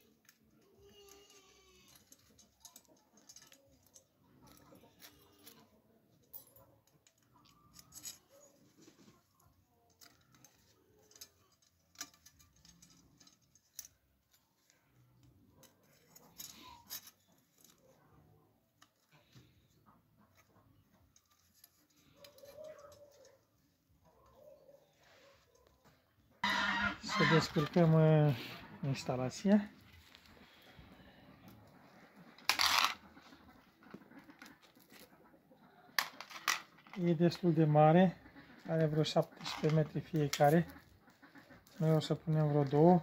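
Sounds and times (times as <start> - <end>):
wire hooks clicking on metal disc: 0.0 - 8.5, 9.4 - 18.0, 38.5 - 42.8.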